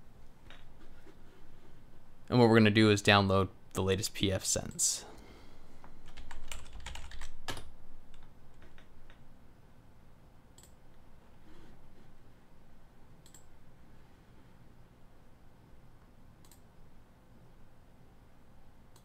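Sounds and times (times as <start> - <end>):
typing on keyboard: 6.0 - 8.9
computer mouse clicks: 10.6 - 10.8, 13.2 - 13.5, 16.4 - 16.7.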